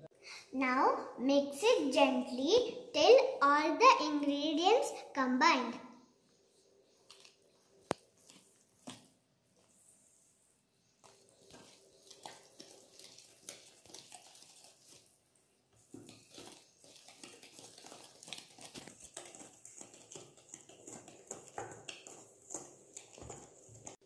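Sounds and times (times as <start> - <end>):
whisk stirring batter in metal bowl: 10.9 - 24.0.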